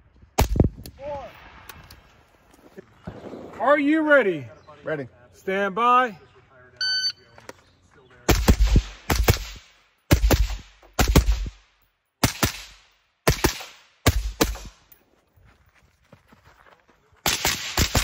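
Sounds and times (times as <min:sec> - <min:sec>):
rifle shots with echo: 0:08.3 - 0:14.8, 0:17.2 - 0:18.0.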